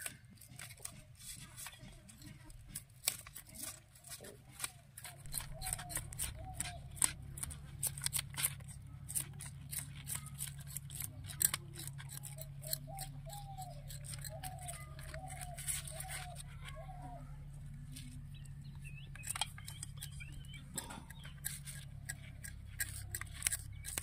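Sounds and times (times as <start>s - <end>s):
knife cutting and scraping: 0.0s - 24.0s.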